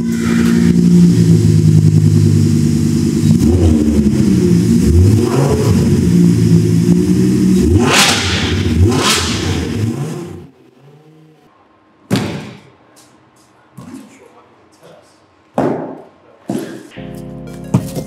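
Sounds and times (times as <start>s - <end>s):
car engine idling and revving: 0.0s - 11.5s.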